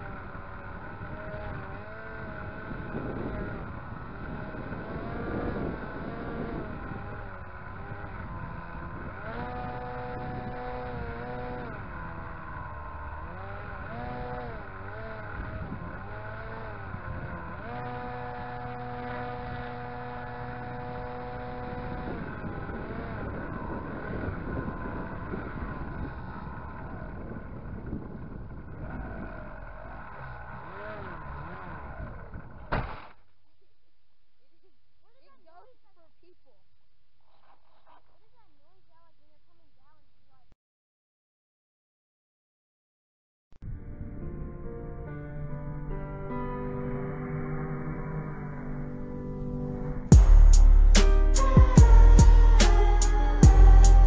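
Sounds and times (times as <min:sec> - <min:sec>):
electric motor whine: 0:00.0 - 0:32.7, 0:47.3 - 0:54.0
propeller airflow rush: 0:00.0 - 0:33.0, 0:46.2 - 0:54.0.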